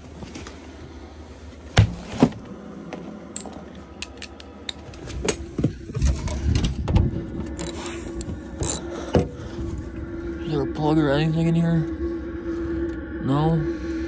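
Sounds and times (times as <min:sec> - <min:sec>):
clicks and metallic clinks: 0:07.6 - 0:08.0.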